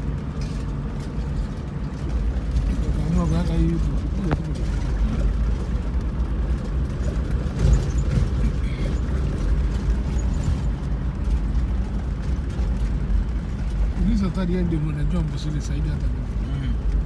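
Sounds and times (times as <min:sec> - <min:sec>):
vehicle bump: 0:00.0 - 0:13.9
engine and tyres rumbling: 0:00.0 - 0:17.0.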